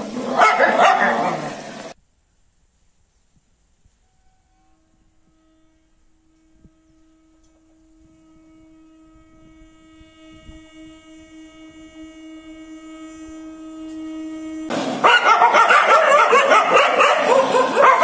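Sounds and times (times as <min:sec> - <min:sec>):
train horn: 0:00.0 - 0:01.9, 0:03.9 - 0:18.0.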